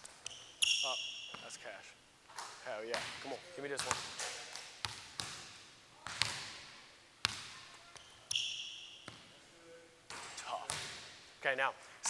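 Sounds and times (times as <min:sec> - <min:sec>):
sneaker squeak on court: 0:00.2 - 0:01.6, 0:07.9 - 0:09.3
basketball bouncing on wooden floor: 0:03.8 - 0:06.6.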